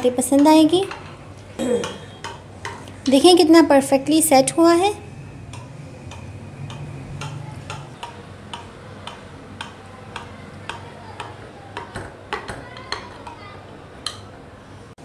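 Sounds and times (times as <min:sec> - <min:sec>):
light regular ticking: 0:05.5 - 0:11.4.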